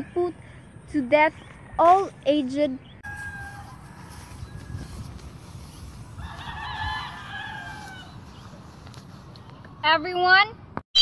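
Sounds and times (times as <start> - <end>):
rooster crowing: 3.0 - 5.1, 6.2 - 8.2.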